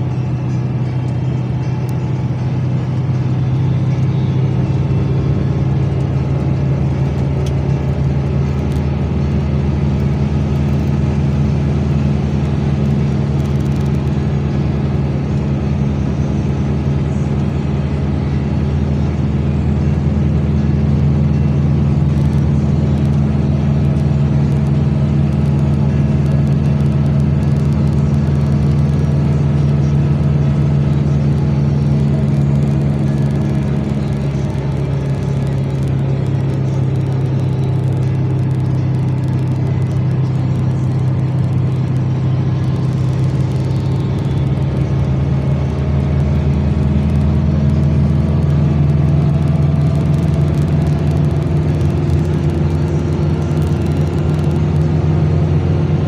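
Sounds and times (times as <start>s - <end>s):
vehicle engine drone and road noise: 0.0s - 56.0s.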